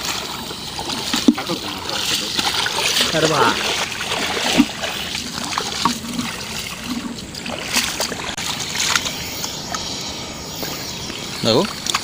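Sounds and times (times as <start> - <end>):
water splashing by hand: 0.0 - 10.0, 10.6 - 12.0.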